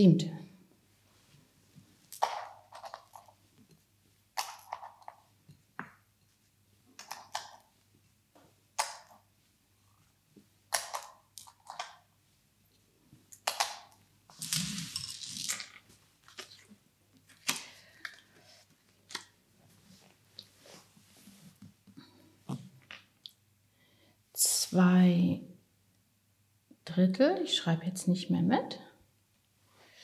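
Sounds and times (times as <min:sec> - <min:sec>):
pieces clattering: 0:02.1 - 0:03.4, 0:04.4 - 0:05.2, 0:10.7 - 0:12.0, 0:13.3 - 0:16.7
light wooden pieces clicking: 0:07.0 - 0:07.7, 0:10.7 - 0:12.0, 0:13.3 - 0:16.6.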